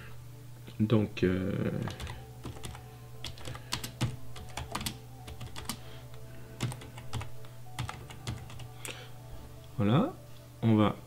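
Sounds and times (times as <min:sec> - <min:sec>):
steady low hum: 0:00.0 - 0:11.0
typing on computer keyboard: 0:01.8 - 0:05.8, 0:06.6 - 0:08.7.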